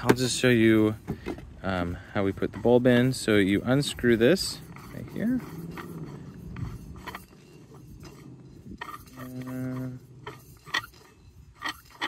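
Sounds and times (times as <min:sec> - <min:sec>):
low hum: 0:02.4 - 0:12.0
metal threads clicking and scraping: 0:02.4 - 0:12.0.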